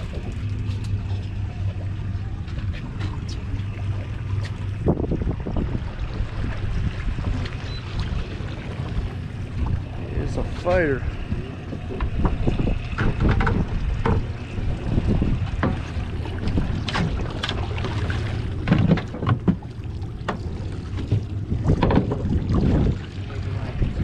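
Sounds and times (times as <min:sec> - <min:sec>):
boat engine low rumble: 0:00.0 - 0:24.0
wind buffeting microphone: 0:01.7 - 0:19.6, 0:20.3 - 0:24.0
short knocks and clicks: 0:12.0 - 0:14.3.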